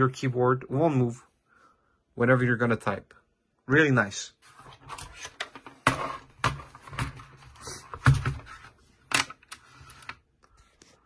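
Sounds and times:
plastic keyboard clicks and knocks: 0:08.0 - 0:10.2.

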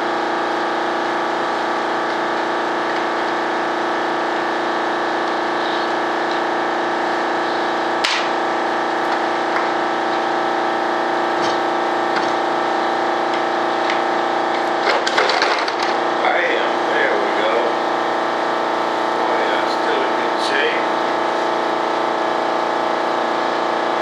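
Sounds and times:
air compressor running: 0:00.0 - 0:24.0
sharp crack: 0:08.0 - 0:08.4.

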